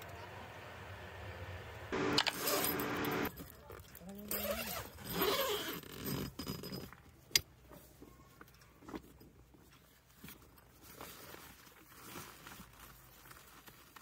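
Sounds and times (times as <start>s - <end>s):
tent fabric rustling: 9.7s - 14.0s.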